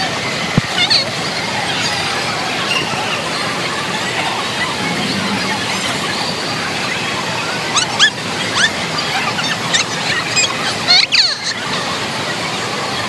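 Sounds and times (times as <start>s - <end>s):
crowd noise: 1.0s - 7.7s
high-pitched squeals: 4.0s - 7.4s.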